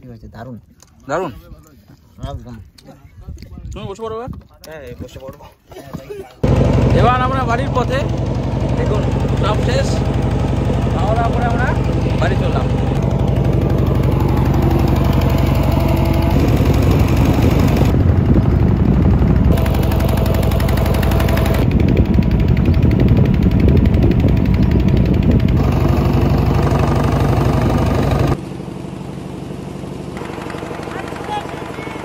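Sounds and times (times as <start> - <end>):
motor boat engine droning: 6.4 - 32.0.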